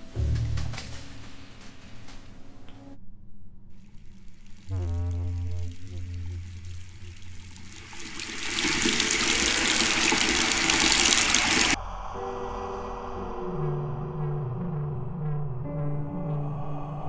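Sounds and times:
faucet water splashing into sink: 3.8s - 11.8s.

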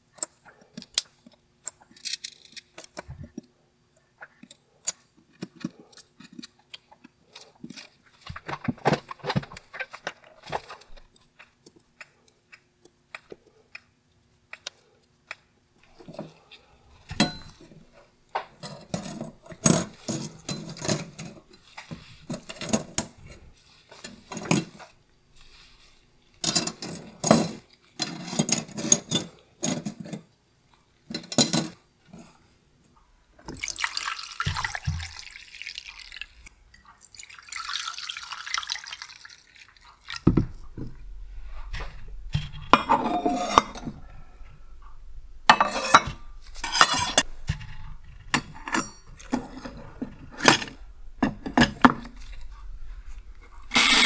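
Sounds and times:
liquid pouring into jar: 33.4s - 40.8s.

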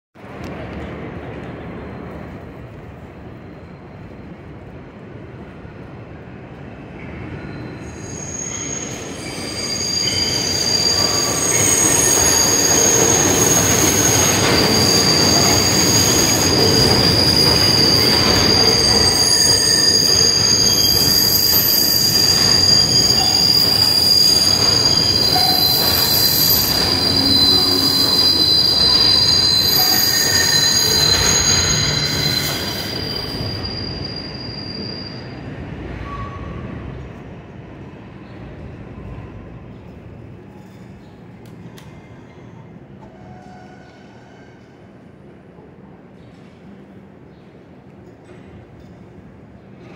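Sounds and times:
train wheels squealing: 1.7s - 5.0s, 6.5s - 39.8s, 40.4s - 45.2s, 47.3s - 49.9s
train cars rumbling: 8.6s - 37.6s.

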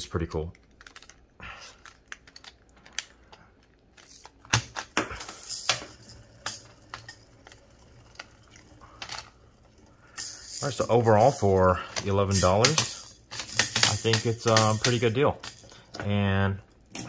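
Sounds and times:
plastic toy clicks and knocks: 11.2s - 15.6s.

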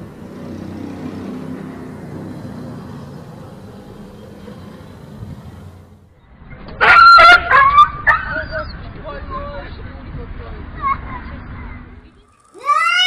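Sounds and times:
street traffic rumble: 0.0s - 13.0s
dog yelping: 6.8s - 8.8s.

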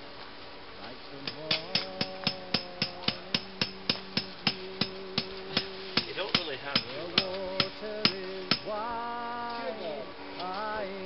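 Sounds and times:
hand hammer striking: 1.3s - 8.7s.

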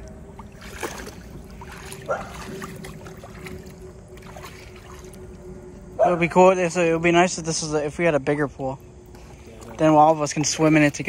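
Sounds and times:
water sloshing and splashing: 0.0s - 5.9s, 9.2s - 11.0s.

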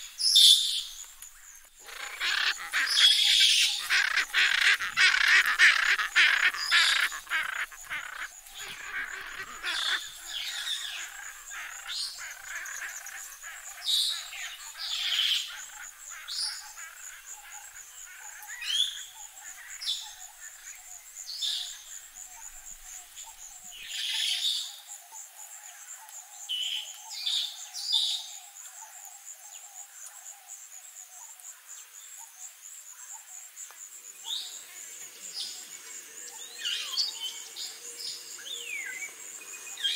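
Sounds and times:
high-pitched insect drone: 0.8s - 23.4s
parrots squawking: 1.8s - 14.3s.

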